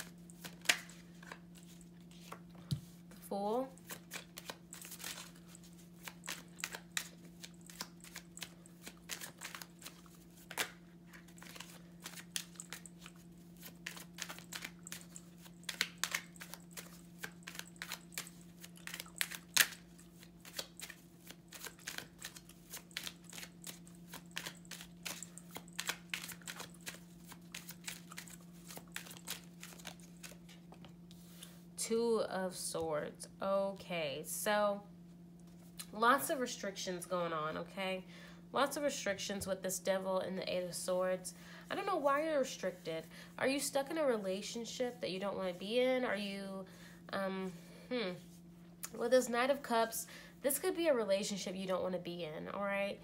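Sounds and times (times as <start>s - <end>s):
cards being shuffled: 0.0s - 3.0s, 3.8s - 31.5s.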